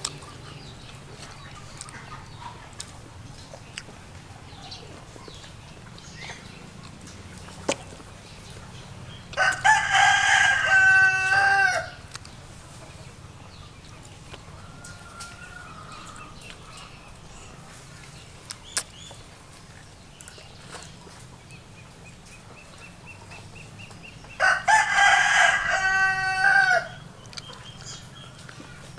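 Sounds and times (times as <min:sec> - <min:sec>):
rooster crowing: 0:09.4 - 0:12.0, 0:14.5 - 0:16.4, 0:24.4 - 0:27.0.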